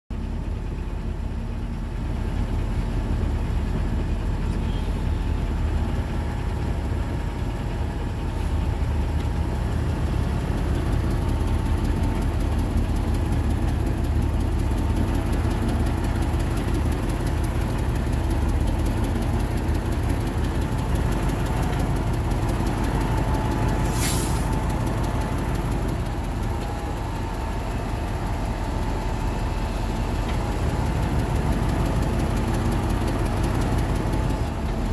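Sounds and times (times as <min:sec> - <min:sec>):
heavy diesel engines running: 0:00.1 - 0:34.9
air brake hiss: 0:23.8 - 0:24.6.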